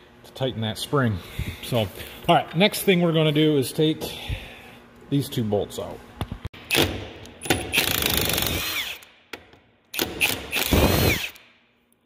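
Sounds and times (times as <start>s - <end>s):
impact wrench hammering: 6.6s - 11.4s.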